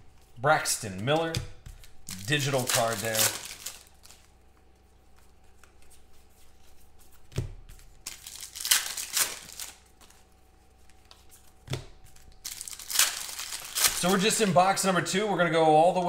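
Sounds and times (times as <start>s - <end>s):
foil pack tearing and crinkling: 2.0s - 4.3s, 8.0s - 10.0s, 12.2s - 14.5s.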